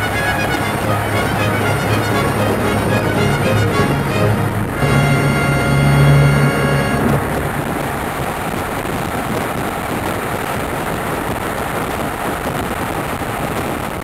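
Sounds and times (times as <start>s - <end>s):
hydrofoil boat roar: 0.0s - 9.5s.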